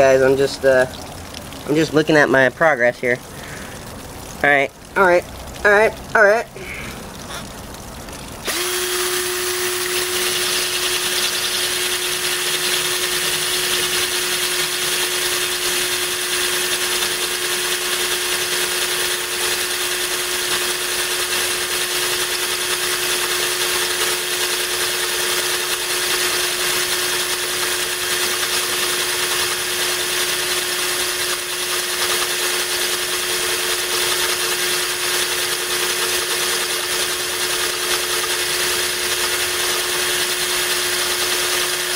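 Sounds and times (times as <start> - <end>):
stream of water: 0.0 - 41.9
power drill grinding into glass: 8.4 - 41.9.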